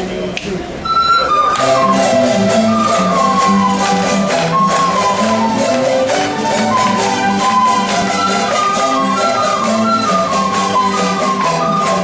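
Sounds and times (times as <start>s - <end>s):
flutes playing melody: 0.8s - 12.0s
strummed string ensemble: 0.8s - 12.0s.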